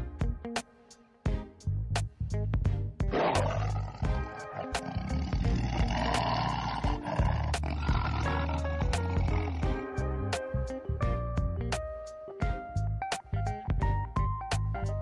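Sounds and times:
background music with steady beat: 0:00.0 - 0:15.0
tiger growling: 0:03.1 - 0:10.1.

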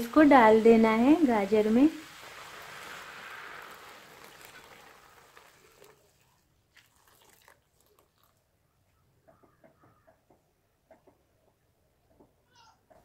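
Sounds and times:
milk hissing in hot pan: 0:00.0 - 0:08.3.

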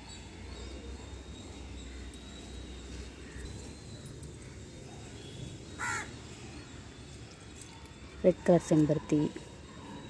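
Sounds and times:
faint high steady tone: 0:00.0 - 0:10.0.

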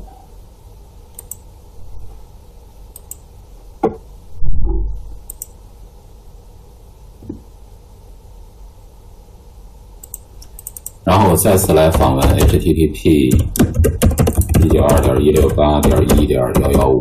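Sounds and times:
faint steady hum: 0:00.0 - 0:17.0
computer mouse clicking: 0:01.1 - 0:01.4, 0:02.9 - 0:03.2, 0:05.2 - 0:05.6, 0:10.0 - 0:11.0, 0:13.4 - 0:16.9.

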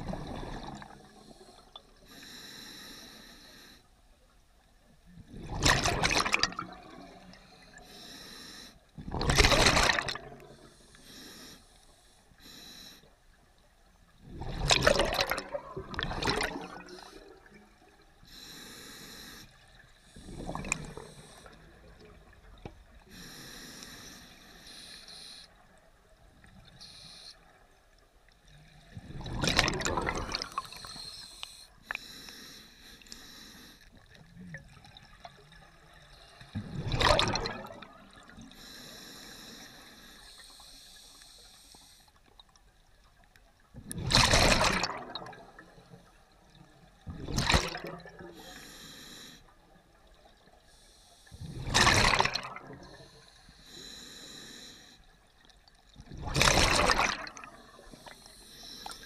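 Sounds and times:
exhaled bubbles bursting: 0:00.0 - 0:01.2, 0:05.3 - 0:07.2, 0:09.0 - 0:10.5, 0:14.2 - 0:17.5, 0:20.2 - 0:22.4, 0:29.0 - 0:30.9, 0:36.6 - 0:38.3, 0:43.9 - 0:45.7, 0:47.1 - 0:48.3, 0:51.5 - 0:53.0, 0:56.0 - 0:57.7
regulator breathing hiss: 0:01.2 - 0:03.9, 0:07.8 - 0:08.8, 0:10.6 - 0:13.1, 0:18.3 - 0:19.6, 0:23.1 - 0:25.6, 0:26.8 - 0:27.4, 0:30.6 - 0:33.9, 0:38.5 - 0:42.2, 0:48.4 - 0:49.5, 0:53.0 - 0:55.1, 0:57.9 - 0:59.0.

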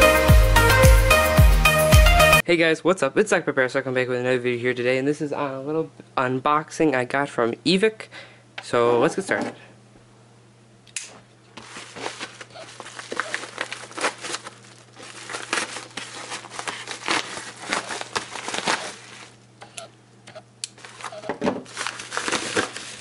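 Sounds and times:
paper mailer being torn open: 0:11.6 - 0:19.4, 0:20.7 - 0:23.0.

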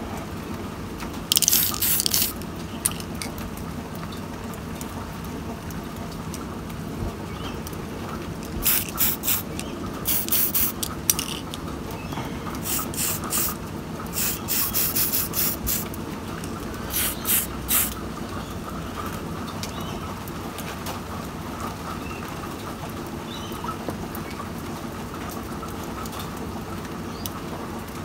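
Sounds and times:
steady rain: 0:00.0 - 0:28.0
spray paint can hissing: 0:01.3 - 0:03.3, 0:08.6 - 0:11.6, 0:12.6 - 0:15.9, 0:16.9 - 0:18.0.

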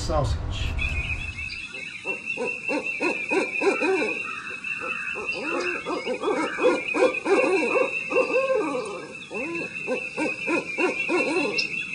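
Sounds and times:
steady high drone: 0:00.0 - 0:01.7
owls hooting: 0:01.1 - 0:11.9.

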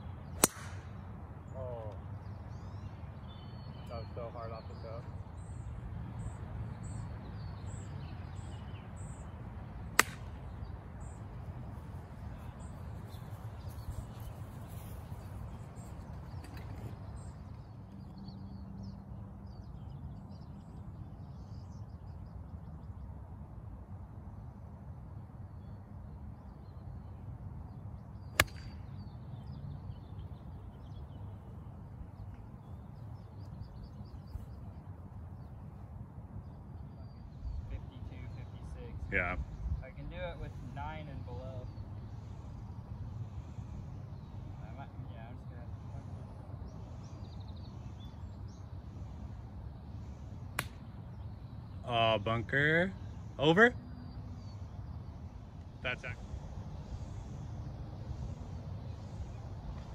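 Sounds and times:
birds chirping: 0:00.0 - 0:23.6, 0:25.4 - 0:59.9
golf club hitting ball: 0:00.3 - 0:00.9, 0:10.0 - 0:10.4, 0:28.4 - 0:28.8.

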